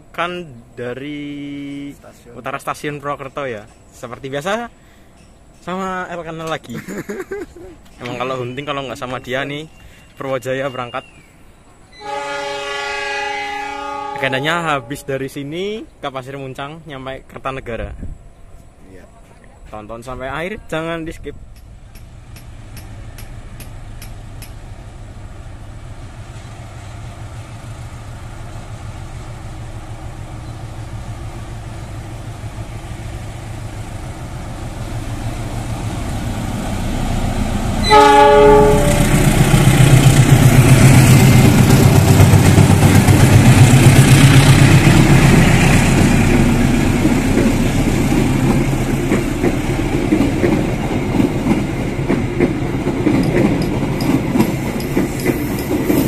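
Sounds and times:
train horn blast: 0:12.0 - 0:15.2, 0:37.8 - 0:39.2
locomotive engine rumble: 0:17.8 - 0:56.0
wheels rattling over rails: 0:39.0 - 0:56.0.

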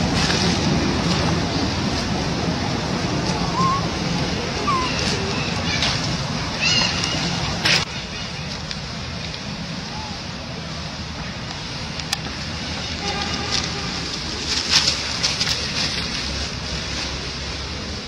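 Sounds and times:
wind rumble on microphone: 0:00.0 - 0:07.9.

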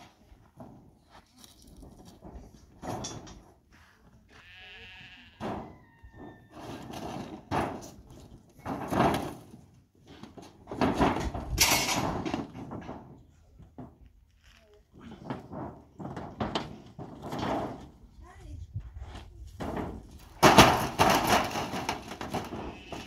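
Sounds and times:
rustling and scuffling: 0:00.0 - 0:04.5
livestock bleating: 0:04.3 - 0:05.4.

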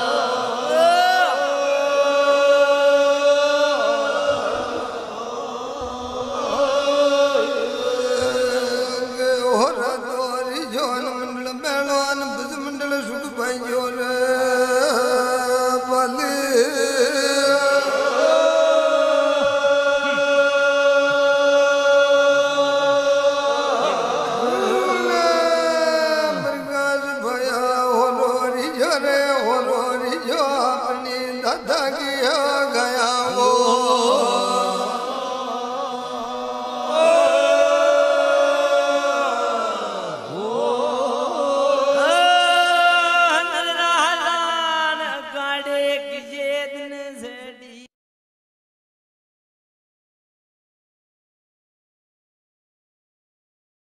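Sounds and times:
devotional chant singing: 0:00.0 - 0:47.9.

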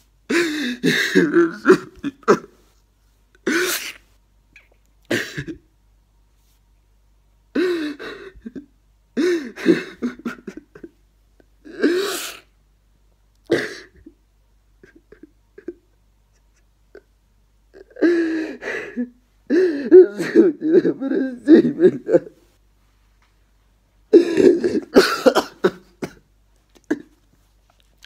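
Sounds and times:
man sobbing: 0:00.3 - 0:02.6, 0:07.5 - 0:12.1, 0:14.8 - 0:17.1, 0:17.7 - 0:22.4, 0:24.1 - 0:26.2, 0:26.8 - 0:27.2.

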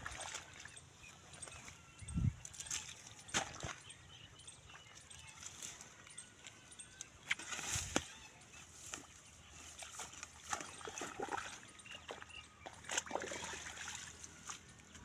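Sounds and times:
wet mud slaps and squelches: 0:02.6 - 0:03.8, 0:12.9 - 0:13.9.

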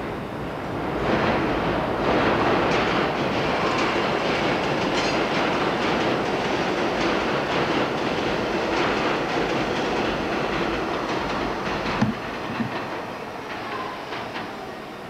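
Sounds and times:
subway train rumbling past: 0:00.0 - 0:15.0
sharp knocks: 0:11.9 - 0:12.9.

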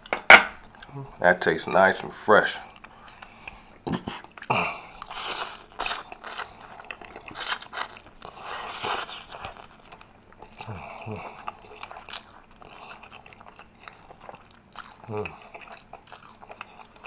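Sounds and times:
person chewing: 0:02.6 - 0:17.0
person slurping noodles: 0:05.0 - 0:06.6, 0:07.2 - 0:09.7.

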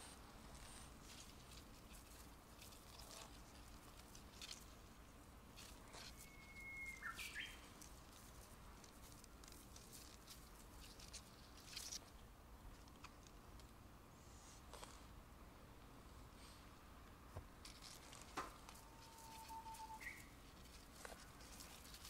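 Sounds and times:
cat chewing grass: 0:00.0 - 0:13.8, 0:17.6 - 0:22.0
bird whistling and chirping: 0:06.0 - 0:07.6, 0:18.8 - 0:20.3.

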